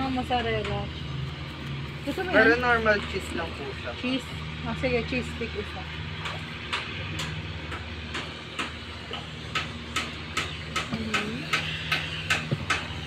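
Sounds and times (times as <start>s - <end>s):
steady low hum: 0.0s - 13.0s
regular sharp ticking: 5.8s - 13.0s.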